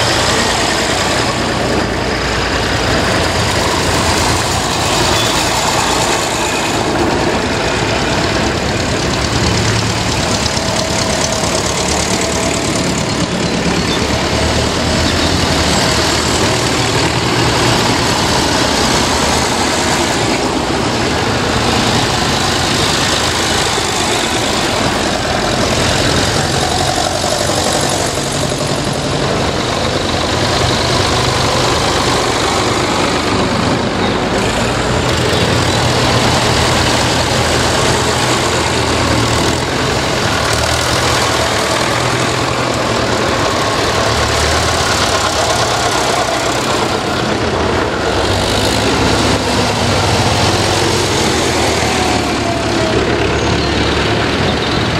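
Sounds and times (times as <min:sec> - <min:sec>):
tractor engines running: 0:00.0 - 0:54.9.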